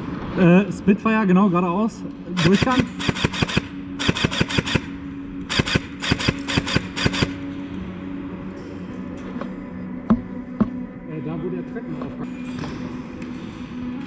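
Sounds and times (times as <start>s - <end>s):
airsoft gun firing bursts: 2.4s - 7.4s.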